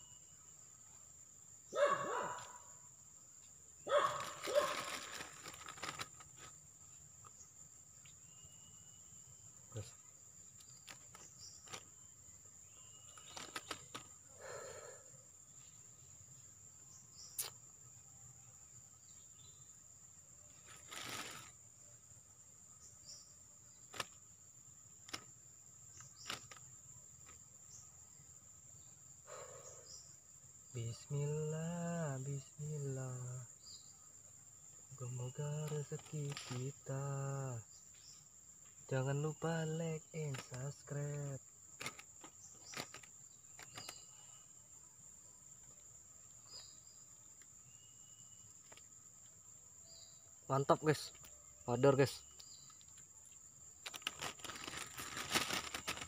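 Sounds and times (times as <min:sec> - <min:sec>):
high-pitched insect drone: 0:00.0 - 0:01.0, 0:27.2 - 0:33.9, 0:34.9 - 0:44.5
dog barking: 0:01.7 - 0:02.6, 0:03.9 - 0:04.9.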